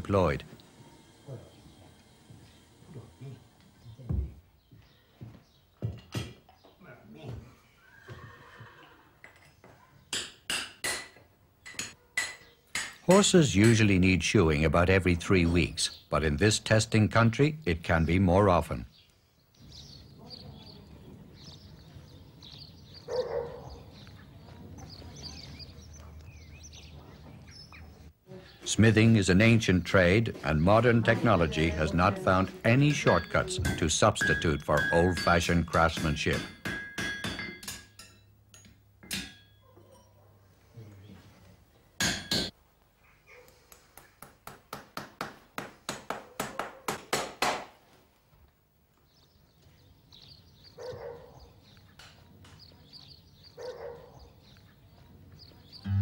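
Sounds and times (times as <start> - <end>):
faint birds chirping: 0.0 - 10.2, 11.4 - 35.9, 39.5 - 42.0, 42.7 - 44.3, 48.2 - 56.0
hammer ringing on anvil: 33.2 - 38.1.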